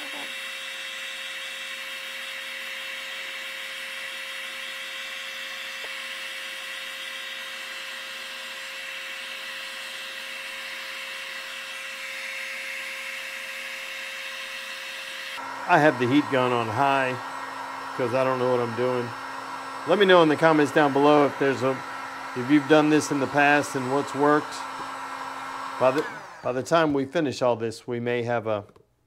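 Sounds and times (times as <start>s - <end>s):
heat gun blowing hiss: 0.0s - 27.1s
fan motor hum: 4.0s - 27.2s.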